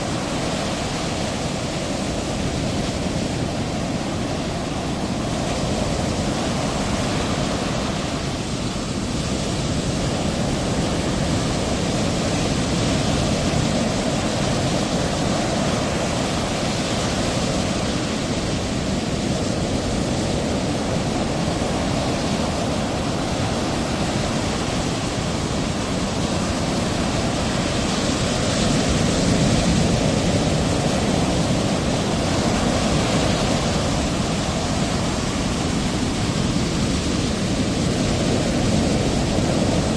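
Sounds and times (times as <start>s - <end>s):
ocean waves breaking: 0.0s - 39.9s.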